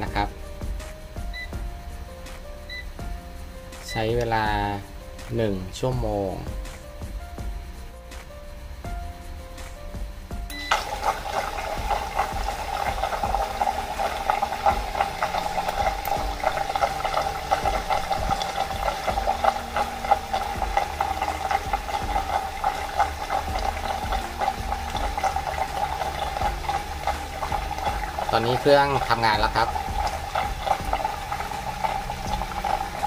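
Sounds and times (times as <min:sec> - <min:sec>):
circulator switching on: 0:10.5 - 0:33.0
water churning and bubbling: 0:10.7 - 0:33.0.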